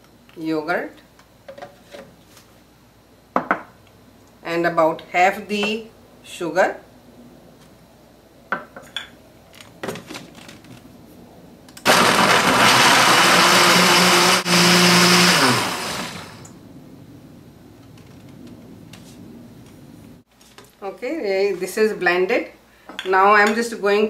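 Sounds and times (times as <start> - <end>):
blender motor running: 11.9 - 16.5.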